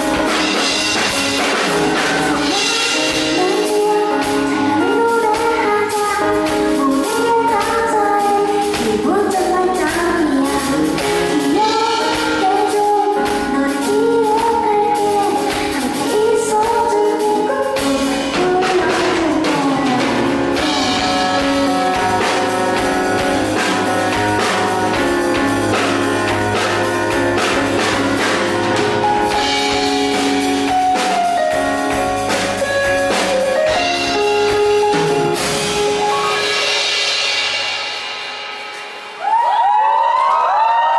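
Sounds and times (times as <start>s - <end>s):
drum kit: 0.0s - 40.9s
stage keyboard: 0.0s - 40.9s
woman singing: 2.0s - 25.5s.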